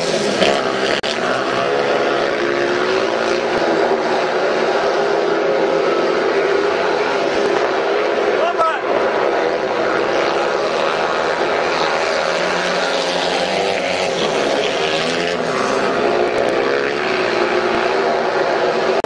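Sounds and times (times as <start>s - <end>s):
motorcycle engines buzzing: 0.0s - 19.0s.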